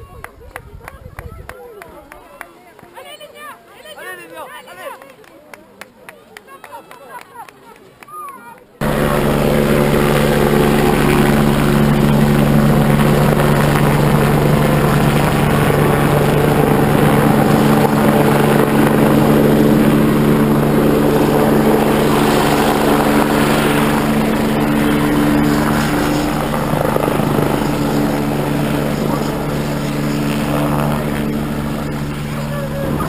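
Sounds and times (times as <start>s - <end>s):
helicopter rotor beating: 8.8s - 33.0s
turbine engine droning: 8.8s - 33.0s.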